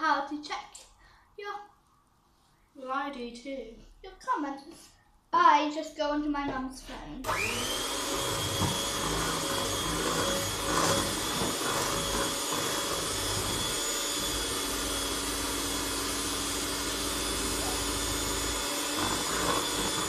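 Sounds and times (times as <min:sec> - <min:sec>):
kitchen mixer whirring: 0:07.3 - 0:20.0
mixer bumps: 0:07.3 - 0:20.0.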